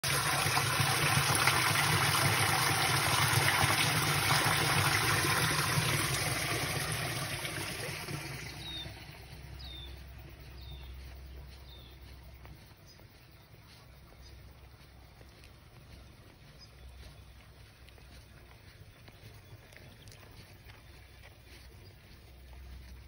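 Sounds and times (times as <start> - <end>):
water pouring through drain grate: 0.0 - 9.8.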